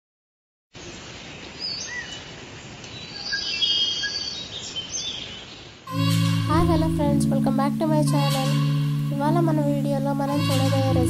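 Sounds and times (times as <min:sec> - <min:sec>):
background hiss: 0:00.8 - 0:11.0
birds chirping and calling: 0:02.9 - 0:06.6.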